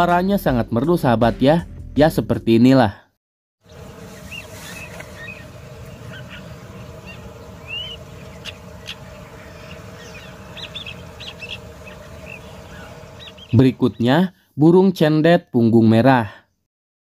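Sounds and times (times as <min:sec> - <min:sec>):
bird singing chirps and whistles: 0:04.2 - 0:14.1.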